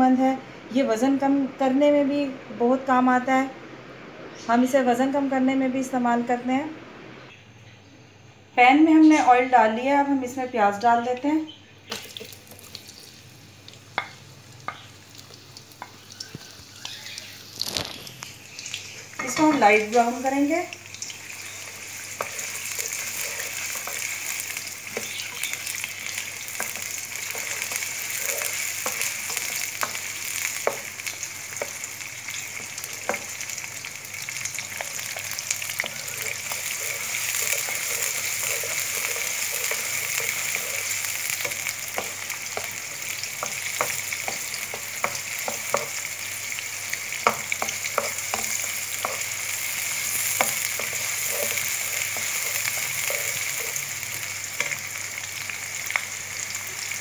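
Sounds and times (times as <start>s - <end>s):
onions sizzling in oil: 11.8s - 57.0s
spatula scraping and tapping: 22.2s - 24.2s, 26.6s - 30.9s, 35.8s - 42.8s, 43.4s - 46.0s, 47.2s - 49.3s, 49.9s - 53.8s.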